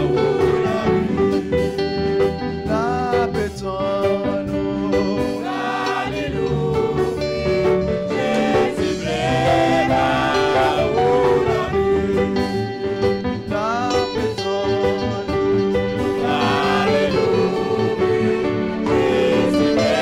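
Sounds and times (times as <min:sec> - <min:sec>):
man singing a hymn: 0:00.0 - 0:01.9, 0:02.6 - 0:07.1, 0:08.1 - 0:12.8, 0:13.4 - 0:15.6, 0:16.2 - 0:20.0
instrumental accompaniment: 0:00.0 - 0:20.0.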